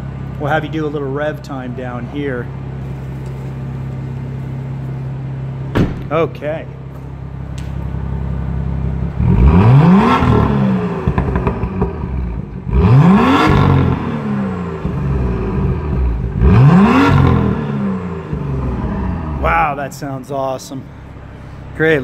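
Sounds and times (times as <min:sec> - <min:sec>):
car engine idling: 0:00.0 - 0:22.0
car engine revving: 0:07.2 - 0:22.0.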